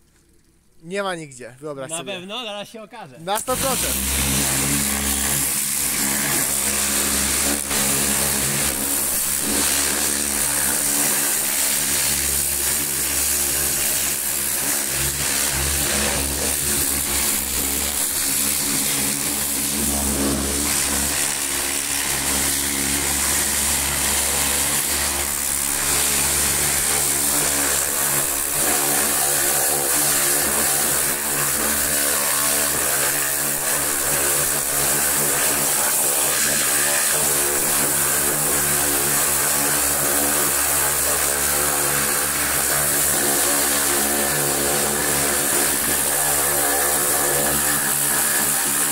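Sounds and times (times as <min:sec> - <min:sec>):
water jet hissing: 0:03.3 - 0:12.1
pressure washer motor drone: 0:03.3 - 0:48.9.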